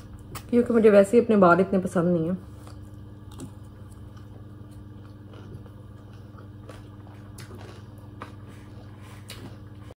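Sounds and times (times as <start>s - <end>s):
low room hum: 0.0s - 9.9s
quiet chewing: 2.4s - 9.9s.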